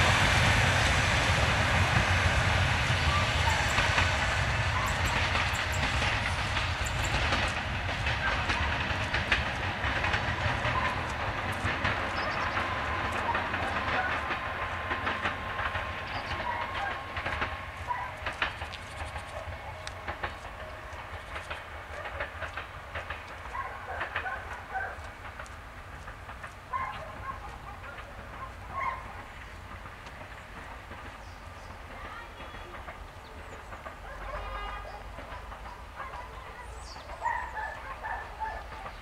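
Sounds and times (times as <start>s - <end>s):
train engine rumbling: 0.0s - 39.0s
wheels clicking over rail joints: 0.1s - 39.0s.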